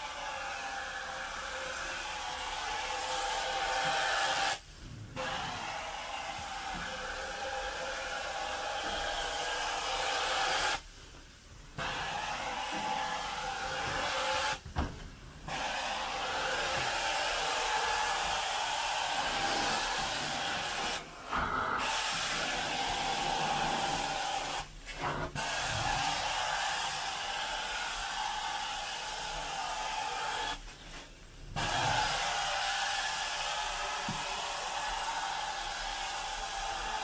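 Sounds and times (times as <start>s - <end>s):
carpet extraction wand hissing: 0.0s - 4.6s, 5.2s - 14.6s, 15.4s - 30.9s, 31.6s - 37.0s.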